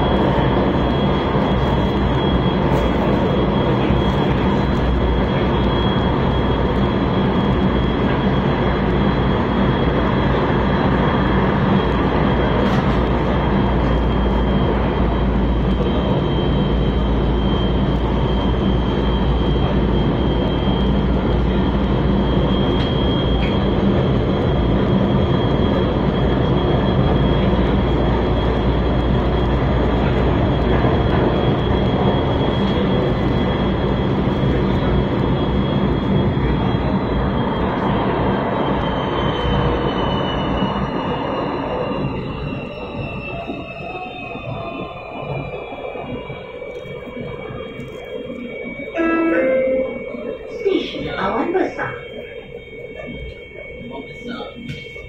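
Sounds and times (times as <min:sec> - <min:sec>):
train wheels rumbling on track: 0:00.0 - 0:55.0
thin high-pitched tone: 0:49.0 - 0:51.1.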